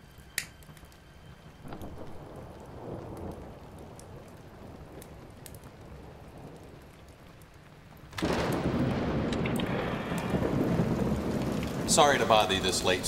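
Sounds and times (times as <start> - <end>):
water dripping: 0.0 - 8.1, 9.3 - 13.0
steady rain falling: 0.0 - 13.0
thunder: 1.6 - 7.0, 8.1 - 13.0.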